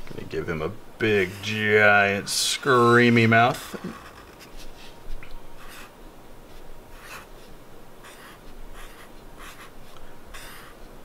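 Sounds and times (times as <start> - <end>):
marker scratching on paper: 3.5 - 5.0, 5.6 - 5.9, 6.5 - 10.8.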